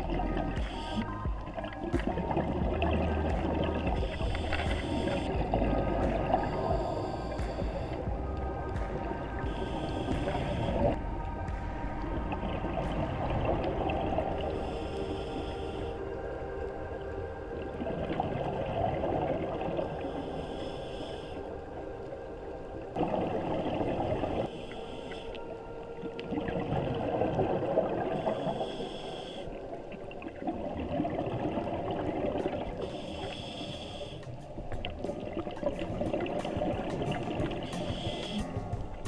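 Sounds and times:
exhaled bubbling: 0.0s - 20.5s, 23.0s - 39.0s
regulator inhale hiss: 6.4s - 8.0s, 14.6s - 16.1s, 20.0s - 21.5s, 24.5s - 25.4s, 28.2s - 29.6s, 32.8s - 34.6s, 37.6s - 38.7s.

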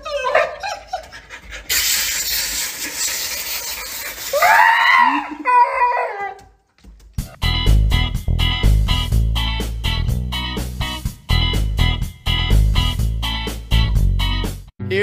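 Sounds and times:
dog howling and whining: 0.0s - 1.2s, 4.4s - 6.6s
shower sprayer hissing into bathtub: 1.7s - 4.4s.

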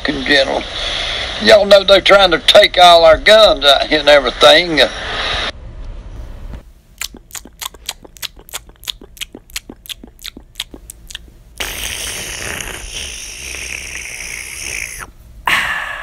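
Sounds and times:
slurping through a straw: 7.0s - 15.1s.

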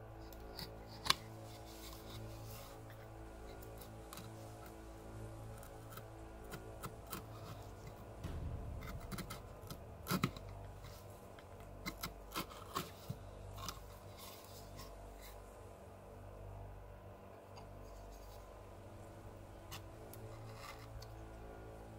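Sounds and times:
knife cutting and scraping bark: 0.3s - 8.1s, 9.1s - 15.5s, 19.6s - 21.3s.

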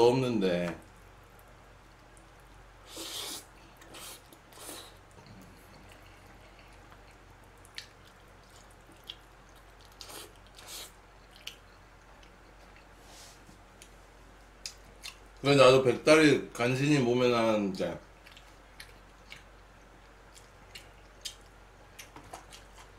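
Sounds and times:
wet mouth clicks chewing: 3.8s - 12.9s.

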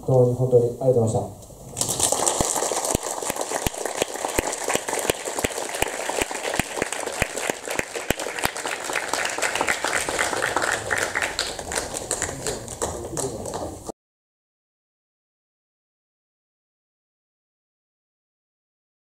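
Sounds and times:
audience applauding: 1.8s - 13.9s.

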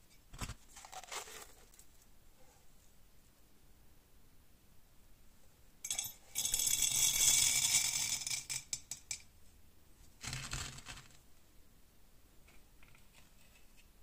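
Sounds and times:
metal balls clattering into crucible: 5.9s - 9.3s.

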